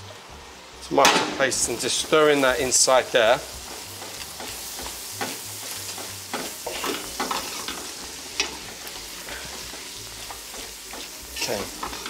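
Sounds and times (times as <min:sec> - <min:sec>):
meat and vegetables sizzling in a pot: 0:00.0 - 0:12.0.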